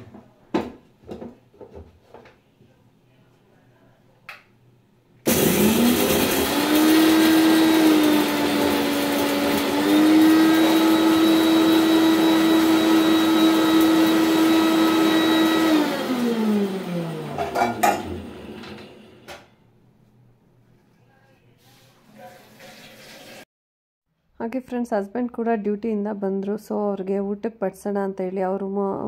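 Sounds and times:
mixer grinder motor whining: 0:05.3 - 0:19.4.

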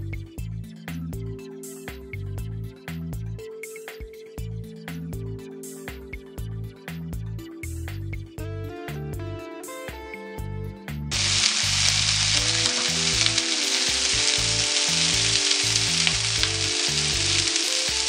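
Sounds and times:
background music: 0:00.0 - 0:18.0
potatoes sizzling in oil: 0:11.1 - 0:18.0.

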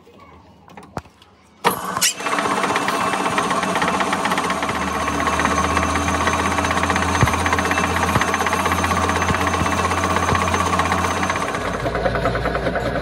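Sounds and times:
lathe drilling into steel: 0:01.7 - 0:12.4
fast rattle: 0:02.0 - 0:13.0
low hum: 0:02.2 - 0:12.5.

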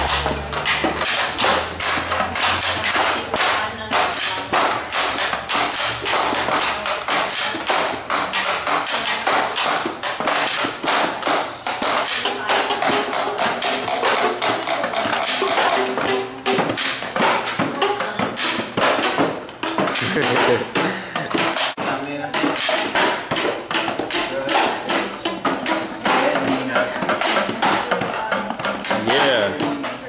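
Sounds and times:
rubber bands twanging on cardboard: 0:00.0 - 0:21.8.

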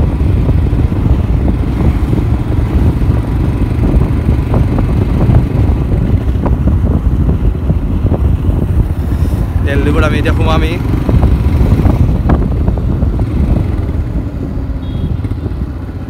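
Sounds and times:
motorcycle running: 0:00.0 - 0:16.0
road noise: 0:00.0 - 0:16.0
wind buffeting microphone: 0:00.0 - 0:16.0.

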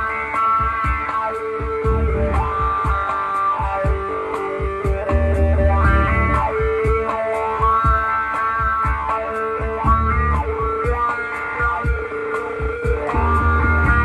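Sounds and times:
drum beat: 0:00.0 - 0:14.0
electric guitar blues-rock line: 0:00.0 - 0:14.0
bass: 0:01.9 - 0:02.6, 0:05.1 - 0:06.6, 0:09.9 - 0:10.6, 0:13.1 - 0:14.0.

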